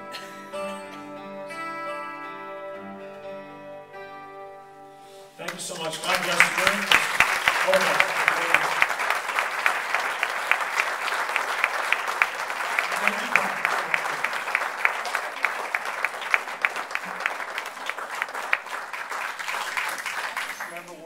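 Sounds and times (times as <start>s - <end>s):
person speaking: 5.4s - 7.0s, 7.6s - 8.8s
audience applauding: 5.4s - 21.0s.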